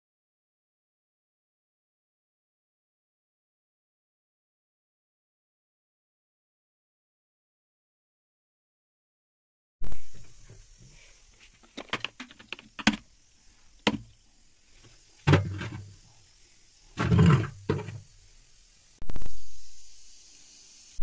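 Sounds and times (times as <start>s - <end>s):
dull thumps with rubbing: 14.8s - 16.0s, 17.0s - 18.0s.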